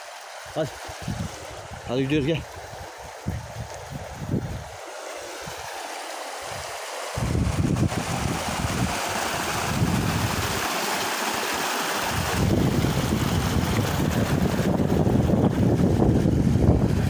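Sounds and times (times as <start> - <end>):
wind buffeting microphone: 0.5 - 4.8, 6.5 - 10.7, 12.1 - 17.0.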